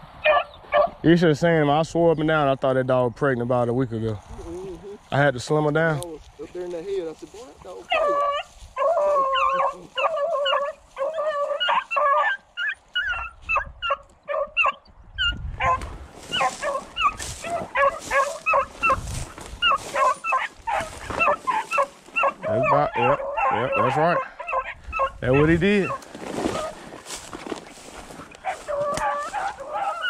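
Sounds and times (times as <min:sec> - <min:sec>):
dogs baying in high yelps: 0:00.2 - 0:01.0, 0:07.8 - 0:27.2, 0:27.8 - 0:30.0
rustle of dry brush: 0:06.1 - 0:11.7, 0:15.7 - 0:22.4, 0:25.3 - 0:30.0.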